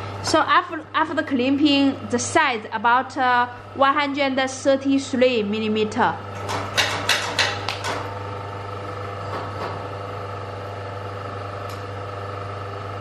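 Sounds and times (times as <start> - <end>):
crimping machine humming: 7.5 - 13.0.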